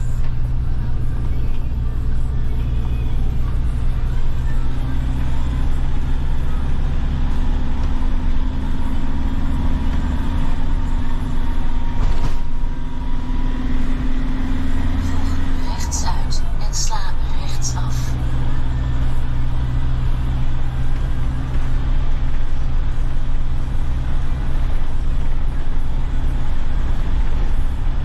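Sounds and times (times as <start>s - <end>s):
vehicle engine and road noise: 0.0s - 28.0s.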